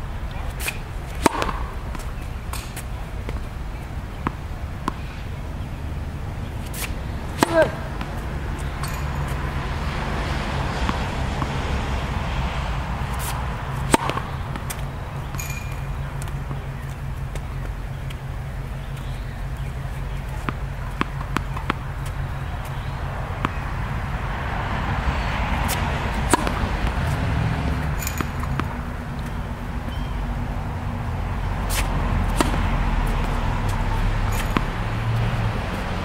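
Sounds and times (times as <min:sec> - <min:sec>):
tennis balls bouncing on court: 0:00.0 - 0:36.0
tennis racket hitting ball: 0:00.3 - 0:30.1, 0:30.9 - 0:36.0
short squeak: 0:15.3 - 0:15.9.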